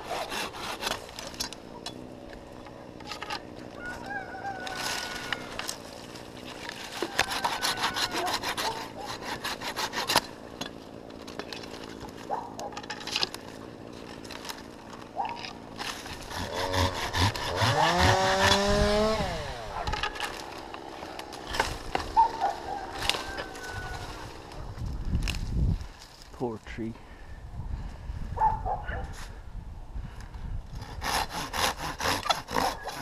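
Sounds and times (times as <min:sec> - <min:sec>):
handsaw cutting wood: 0:00.0 - 0:01.6, 0:04.7 - 0:24.6, 0:30.8 - 0:33.0.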